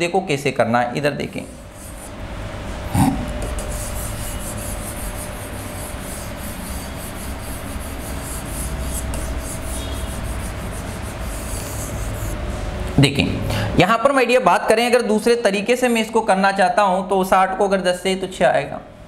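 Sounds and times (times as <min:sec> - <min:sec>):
rubbing strokes on writing board: 0:01.3 - 0:02.2, 0:03.0 - 0:12.5.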